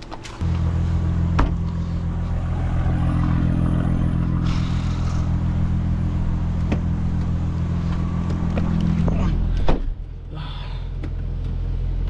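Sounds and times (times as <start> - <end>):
car engine idling: 0.4 - 12.0.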